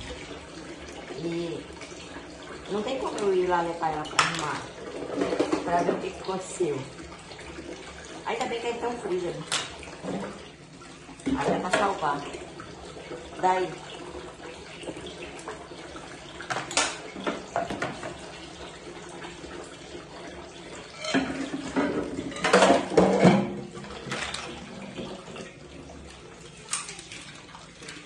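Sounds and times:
tap running into sink: 4.0 - 6.4, 11.2 - 13.2, 16.4 - 18.8, 20.8 - 25.6
dishes and pans clattering: 4.1 - 6.2, 9.4 - 10.4, 16.4 - 18.2, 20.8 - 25.5.

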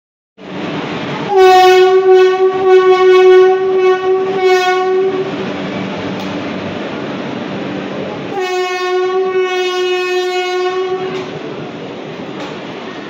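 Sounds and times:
locomotive horn blast: 1.2 - 5.4, 8.3 - 11.4.

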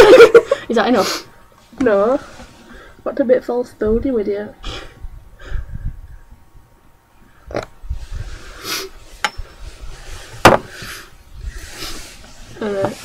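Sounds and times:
breathy hiss: 0.4 - 3.1, 4.6 - 6.3, 7.2 - 13.0
clothing brushing microphone: 7.8 - 13.0.

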